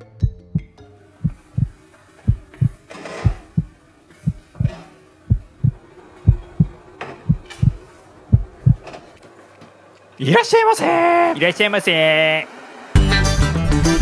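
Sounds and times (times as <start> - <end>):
heartbeat thumps: 0.2 - 8.8.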